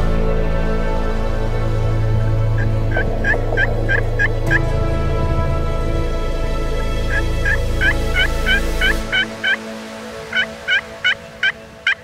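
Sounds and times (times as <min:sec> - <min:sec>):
low rumble: 0:00.0 - 0:09.2
wild turkey yelping: 0:02.6 - 0:04.5, 0:07.1 - 0:09.6.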